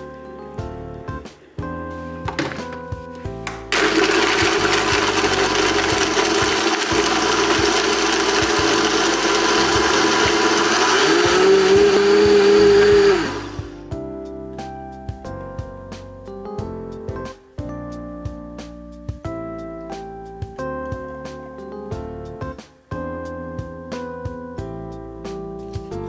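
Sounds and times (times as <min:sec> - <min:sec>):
blender crushing ice: 0:03.7 - 0:13.6.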